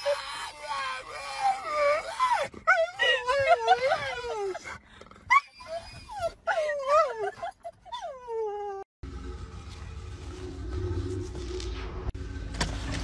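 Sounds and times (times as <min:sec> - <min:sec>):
dog whining and yelping: 0:00.0 - 0:08.9.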